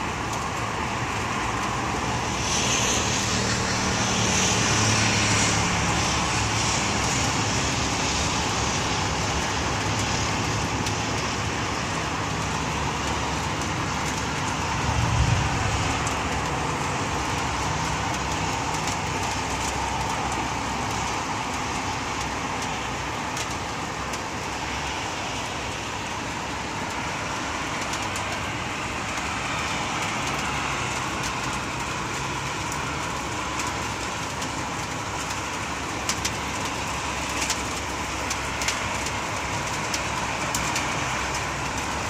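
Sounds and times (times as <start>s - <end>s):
distant road traffic hiss: 0.0s - 42.0s.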